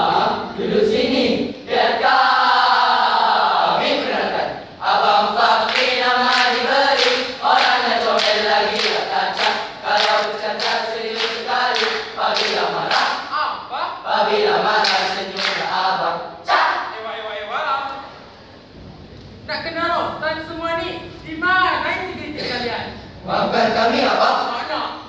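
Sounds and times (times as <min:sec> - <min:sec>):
boys chanting in unison: 0:00.0 - 0:17.0, 0:23.2 - 0:25.0.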